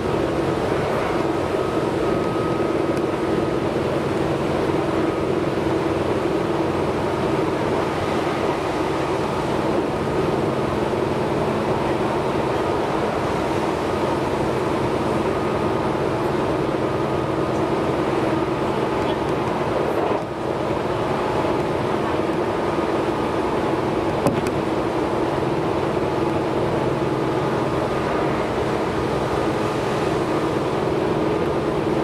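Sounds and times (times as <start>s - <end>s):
faint steady tone: 0.0s - 7.4s
electric train running on rails: 0.0s - 32.0s.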